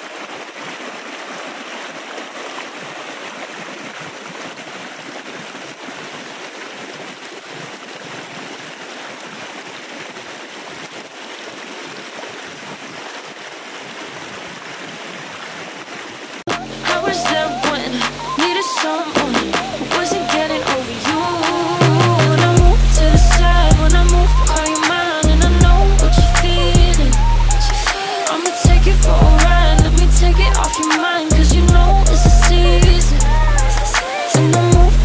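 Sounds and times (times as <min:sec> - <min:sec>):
river rapids rushing over rocks: 0:16.3 - 0:34.9.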